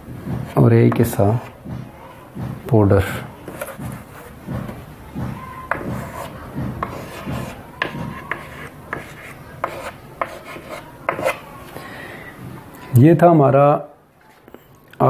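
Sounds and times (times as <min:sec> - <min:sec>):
chalk scratching on blackboard: 0:03.4 - 0:04.8, 0:05.7 - 0:11.8.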